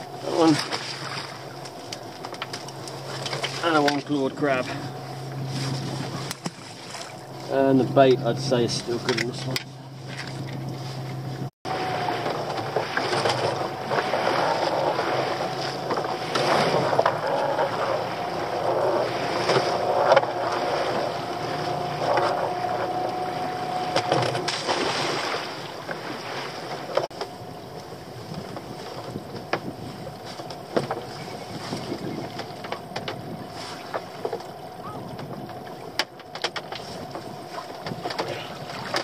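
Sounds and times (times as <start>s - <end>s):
outboard motor hum: 0.0s - 39.0s
water splashing: 0.0s - 39.0s
wind on microphone: 27.4s - 33.9s.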